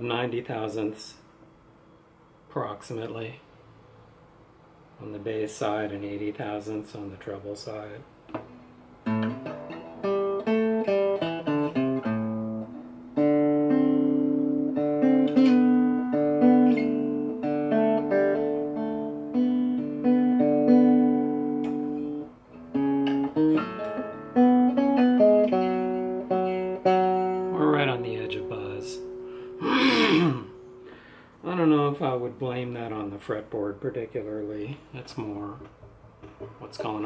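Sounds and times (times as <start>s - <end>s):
fingerpicked acoustic guitar: 8.3s - 31.2s.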